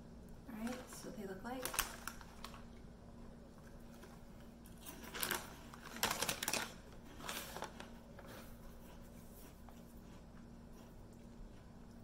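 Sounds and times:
plastic bag crinkling: 0.5s - 2.8s, 3.8s - 8.4s
crunchy snack being chewed: 3.6s - 12.0s.

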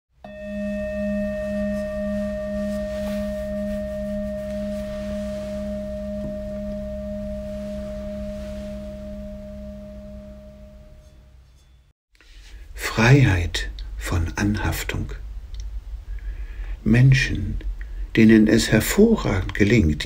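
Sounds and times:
singing bowl ringing: 0.2s - 11.9s.

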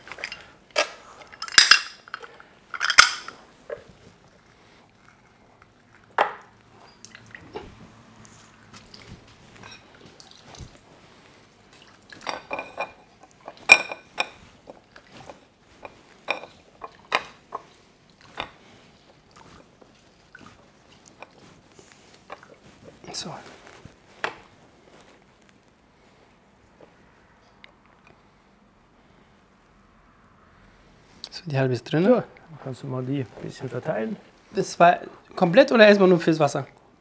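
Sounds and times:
utensils clinking against dishes: 0.1s - 3.4s, 12.2s - 14.4s.

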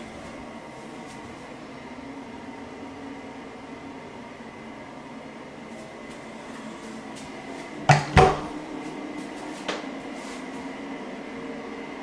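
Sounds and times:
low room hum: 0.0s - 12.0s
sharp knocks of door: 7.9s - 8.5s.

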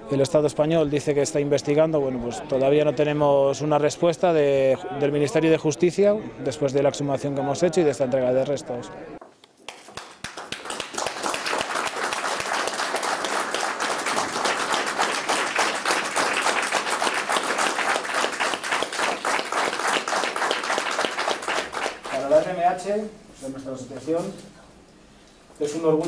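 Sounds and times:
small group applauding: 9.5s - 22.6s.

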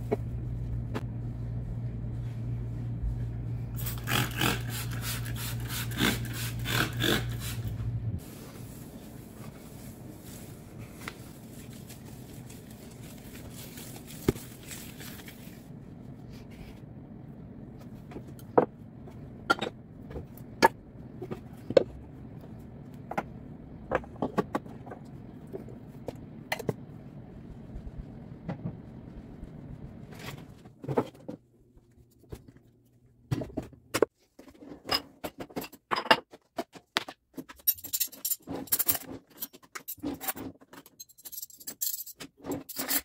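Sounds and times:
counter being wiped: 7.3s - 15.6s.

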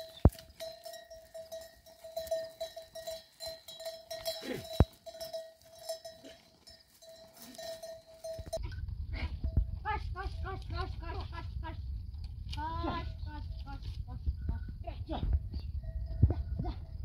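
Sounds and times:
livestock bells clanking: 0.0s - 8.9s.

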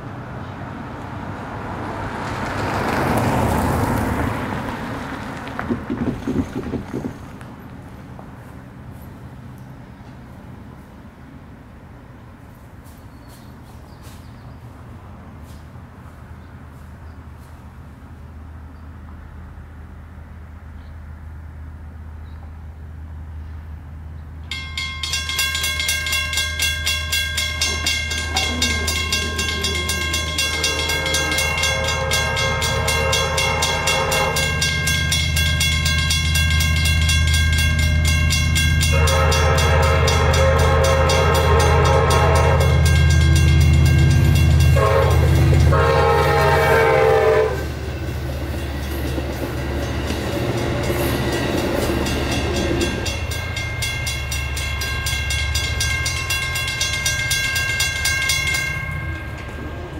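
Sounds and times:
train passing rumble: 0.0s - 59.9s
crossing bells ringing: 24.4s - 59.9s
train horn blasts: 27.5s - 36.1s, 37.8s - 48.2s.

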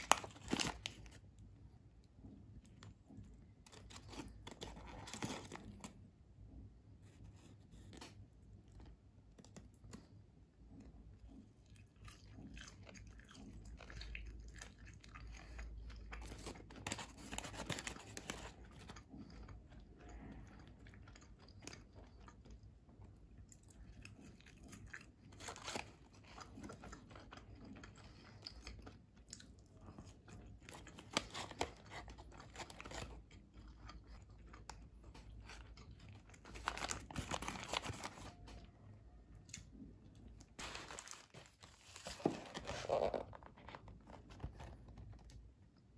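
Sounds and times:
person chewing crunchy fries: 0.0s - 1.4s, 2.0s - 6.1s, 8.6s - 38.6s.

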